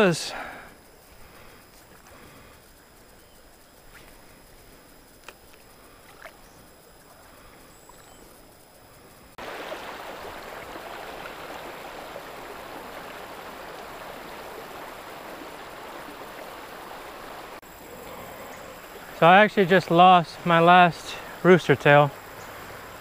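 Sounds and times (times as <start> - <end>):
creek water rushing: 0.0 - 3.0, 9.3 - 23.0.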